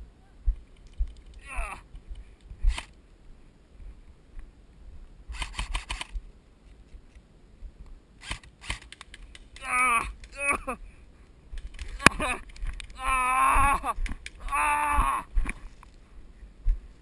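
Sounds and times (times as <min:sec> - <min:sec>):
rapid sharp clicks: 0:05.3 - 0:06.2, 0:08.2 - 0:10.4, 0:11.6 - 0:13.0, 0:13.9 - 0:14.5.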